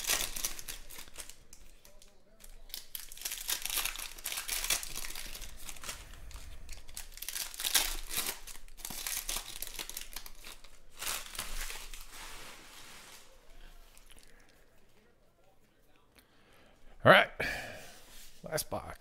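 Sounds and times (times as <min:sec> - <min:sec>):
foil wrapper crinkling and tearing: 0:00.0 - 0:14.4.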